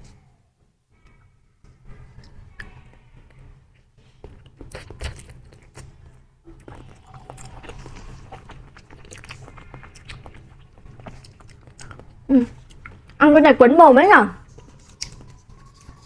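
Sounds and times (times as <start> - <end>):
person chewing: 4.4 - 13.2, 14.7 - 16.0
person sucking jelly: 6.5 - 13.0.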